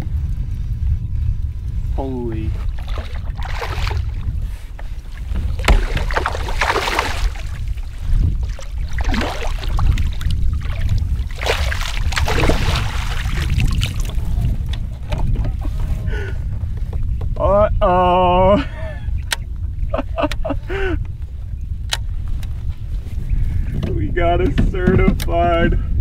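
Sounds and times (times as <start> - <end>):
wind rumbling on microphone: 0.0 - 26.0
water splashing against hull: 1.6 - 17.3.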